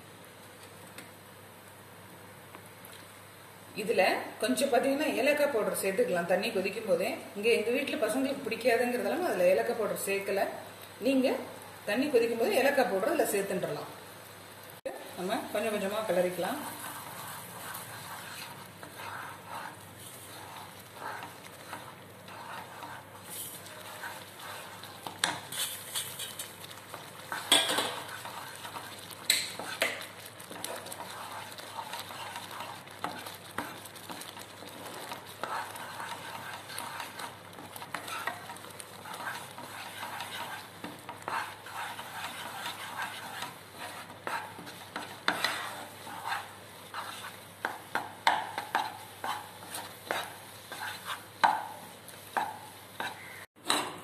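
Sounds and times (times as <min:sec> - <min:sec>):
wet sizzling: 0:10.5 - 0:53.5
wooden spatula scraping a pan: 0:15.2 - 0:53.9.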